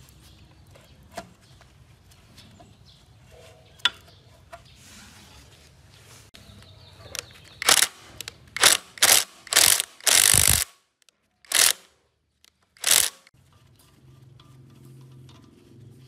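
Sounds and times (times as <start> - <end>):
impact wrench hammering: 8.6 - 10.8, 11.5 - 11.8, 12.8 - 13.3.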